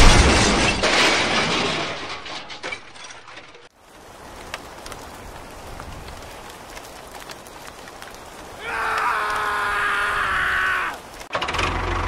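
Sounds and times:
load crashing and rattling: 0.0 - 3.7
light rain: 2.9 - 12.0.

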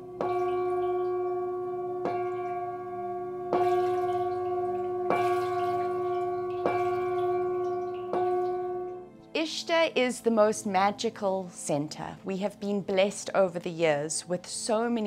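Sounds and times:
singing bowl ringing: 0.0 - 9.1.

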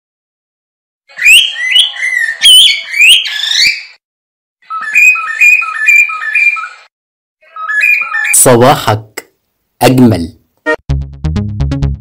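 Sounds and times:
bird-like whistled chirps: 1.1 - 4.0, 4.7 - 6.9.

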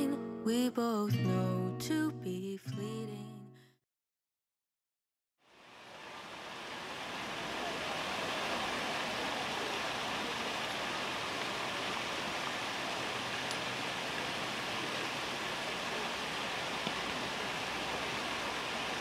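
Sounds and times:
fountain water splashing: 5.5 - 19.0.

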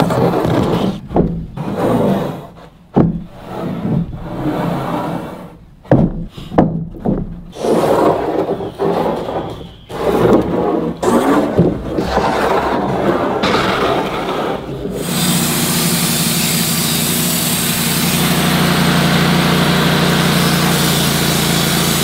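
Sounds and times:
sharp wooden knocks: 0.0 - 1.7, 2.9 - 3.3, 5.8 - 18.5
wooden boards scraping: 0.0 - 22.0.

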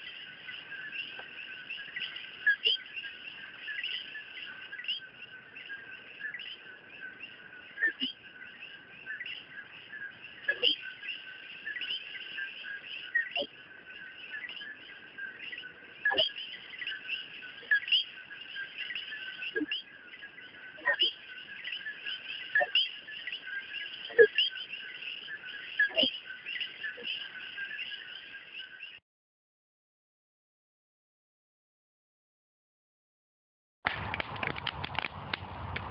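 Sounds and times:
birds chirping and calling: 0.0 - 29.0
sharp clicks: 33.9 - 35.9.

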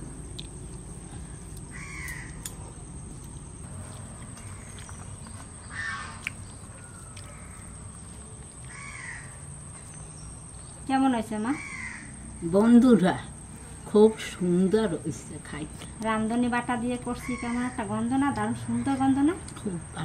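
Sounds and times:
low background hum: 0.0 - 20.0
crow cawing: 1.7 - 2.5, 5.7 - 6.2, 8.7 - 9.4, 11.5 - 12.3, 17.2 - 17.8.

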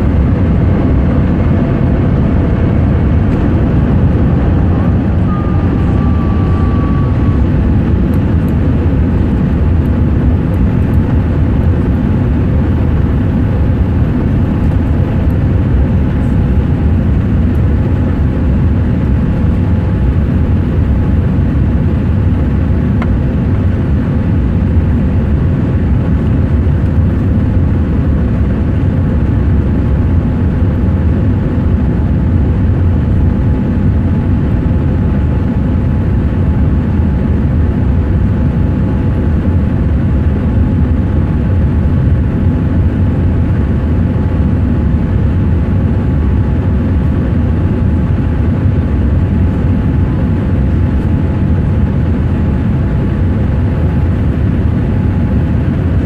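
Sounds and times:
faint steady hum: 0.0 - 30.2
jet engine rush in cabin: 0.0 - 56.0.

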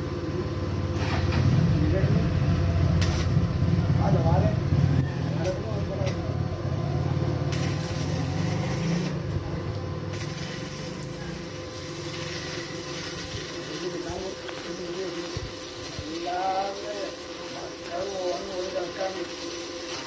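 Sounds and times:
arc welding crackling hiss: 2.8 - 3.6, 5.4 - 6.3, 7.4 - 20.0.

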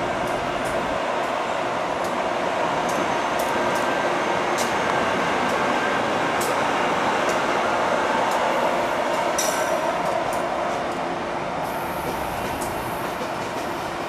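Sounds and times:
electric locomotive hum: 0.0 - 14.0.

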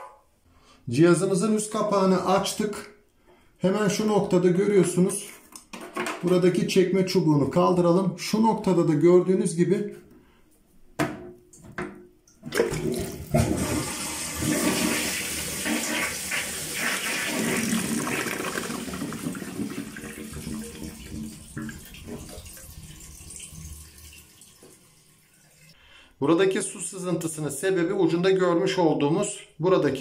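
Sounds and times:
toilet cistern water rushing: 12.4 - 25.8.

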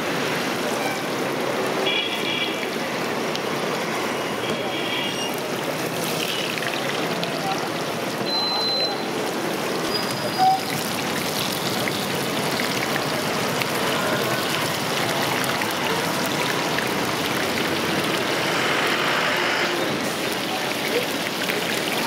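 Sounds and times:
chillies deep-frying in hot oil: 0.0 - 22.0
oil popping: 9.2 - 22.0.

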